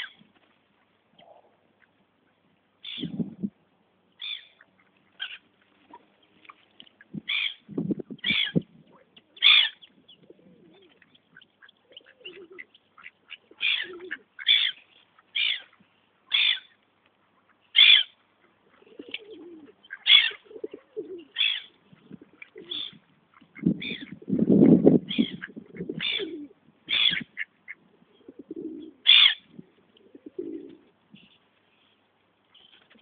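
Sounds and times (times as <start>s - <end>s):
soft low bird sounds: 0.0s - 33.0s
gulls calling: 4.2s - 16.8s, 17.4s - 24.2s, 25.1s - 29.5s.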